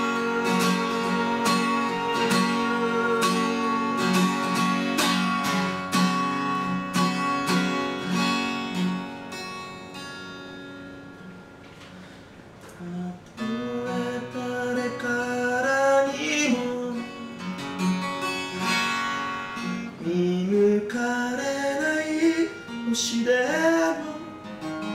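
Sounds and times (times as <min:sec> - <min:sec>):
man singing: 0:00.0 - 0:05.0, 0:12.8 - 0:17.5, 0:20.0 - 0:24.5
acoustic guitar strumming: 0:00.0 - 0:24.9.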